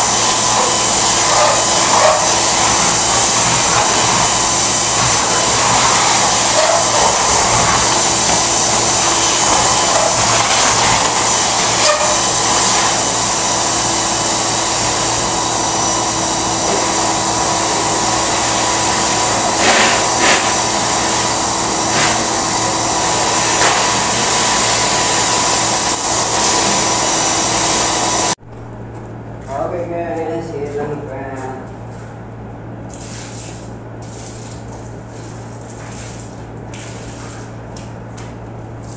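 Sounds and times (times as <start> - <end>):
vacuum cleaner running: 0.0 - 28.4.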